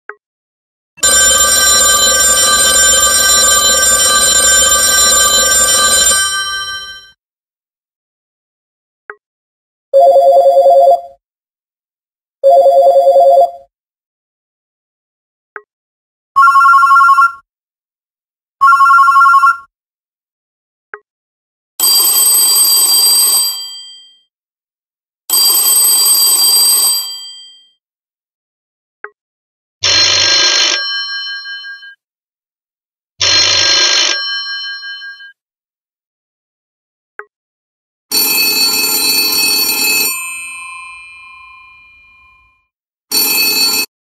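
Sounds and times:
phone ringtones: 1.0s - 7.2s, 10.0s - 11.2s, 12.4s - 13.7s, 16.4s - 17.4s, 18.6s - 19.7s, 38.1s - 42.5s, 43.1s - 43.9s.

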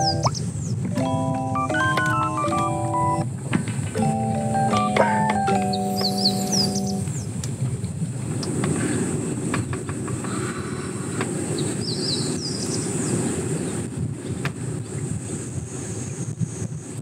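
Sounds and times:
wind rumbling on microphone: 5.7s - 17.0s.

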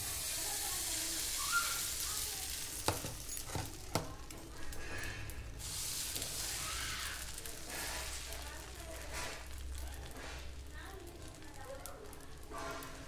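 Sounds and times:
batter sizzling on hot pan: 0.0s - 13.0s.

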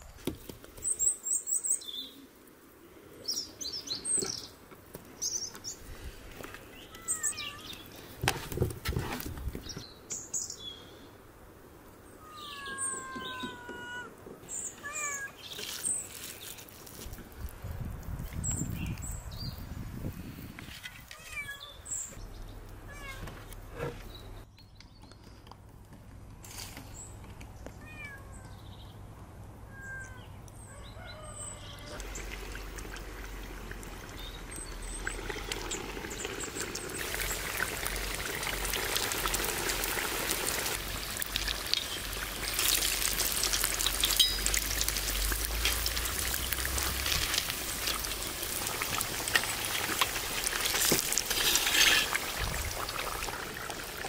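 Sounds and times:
birds chirping: 3.2s - 8.1s, 12.0s - 16.6s
hot oil sizzling and crackling: 32.0s - 54.0s.

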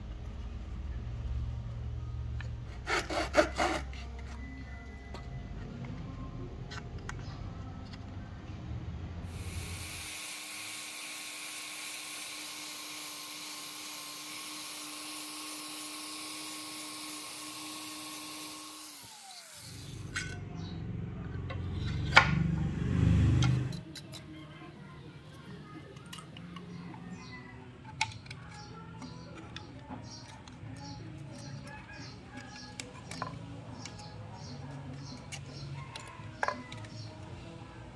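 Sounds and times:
electric orbital sander: 9.3s - 20.1s.

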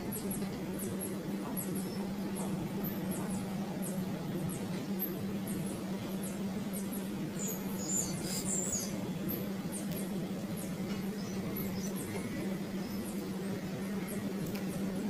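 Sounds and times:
nestling birds cheeping: 0.0s - 15.0s
steady low hum: 0.0s - 15.0s.

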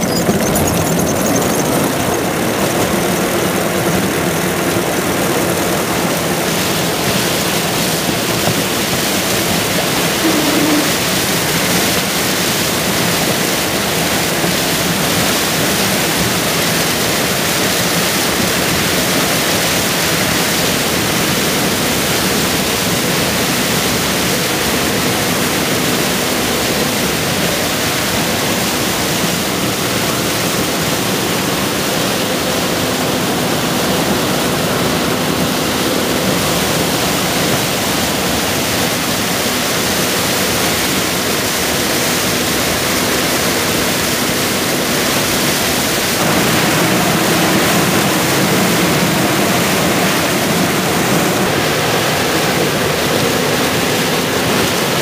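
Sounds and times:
combine harvester harvesting corn: 0.0s - 55.0s.

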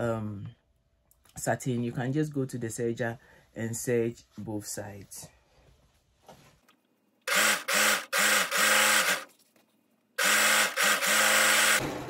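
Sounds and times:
overlock machine running: 7.3s - 9.3s, 10.2s - 12.0s.

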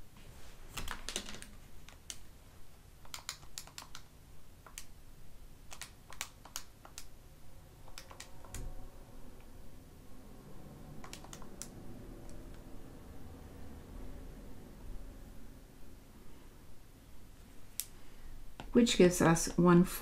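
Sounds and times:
keys clicking: 7.8s - 8.7s.

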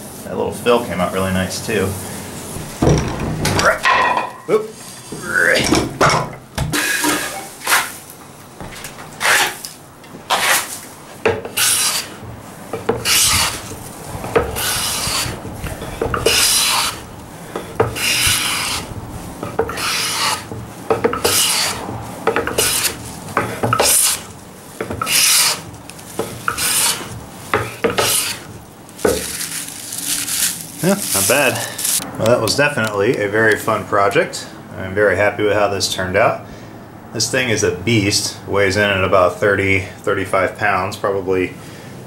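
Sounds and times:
hand plane scraping wood: 9.2s - 9.7s, 10.3s - 29.5s.

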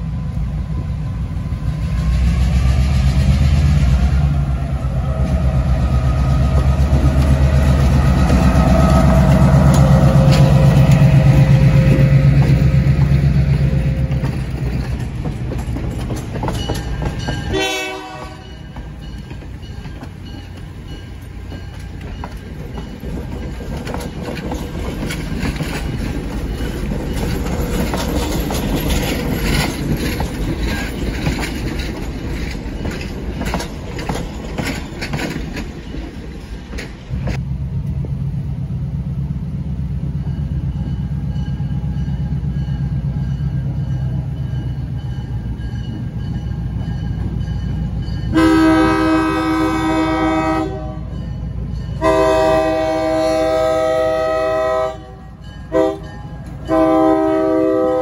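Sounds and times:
diesel locomotive drone: 0.0s - 58.0s
train wheels clattering over rail joints: 5.2s - 17.7s, 18.4s - 37.4s.

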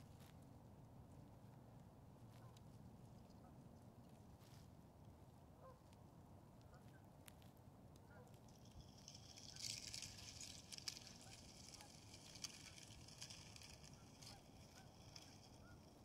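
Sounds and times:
slush ice hissing and crackling: 8.6s - 16.0s.

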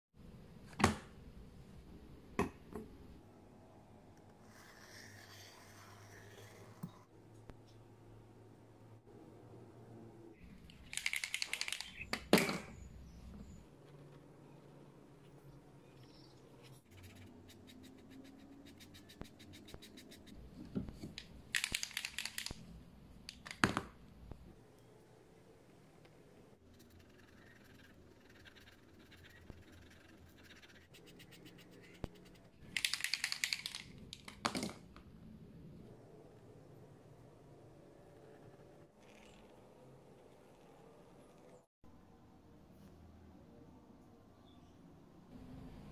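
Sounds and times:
pen scratching on paper: 26.7s - 32.4s.

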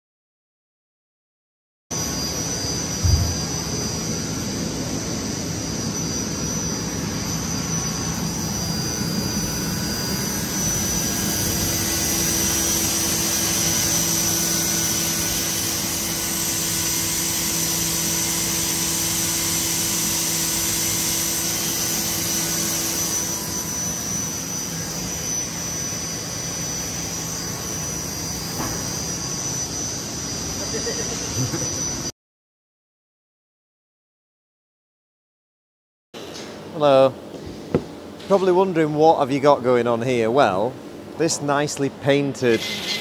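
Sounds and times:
machine whirring hiss: 2.0s - 29.9s, 42.5s - 43.0s.

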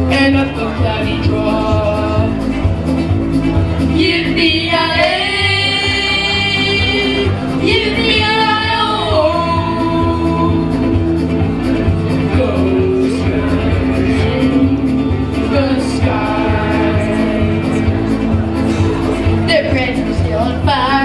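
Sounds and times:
boys singing through pa: 0.0s - 2.6s, 12.3s - 19.1s
instrumental backing music: 0.0s - 21.0s.

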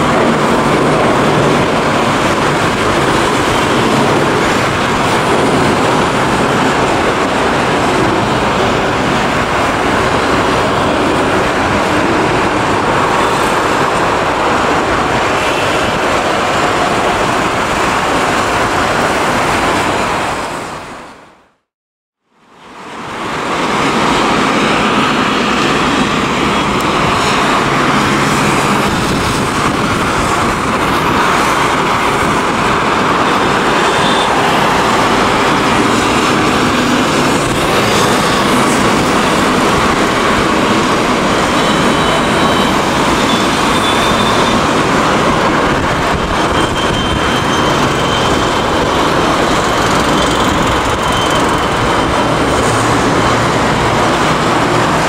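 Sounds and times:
jet airliner climbing: 0.0s - 19.8s.

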